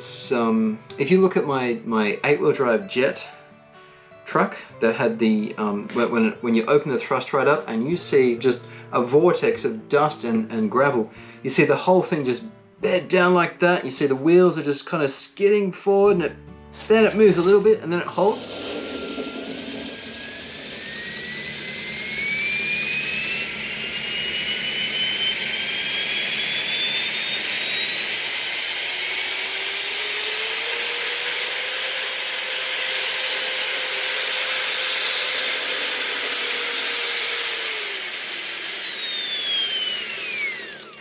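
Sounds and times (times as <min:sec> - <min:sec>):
electric fan whine: 0:16.8 - 0:41.0.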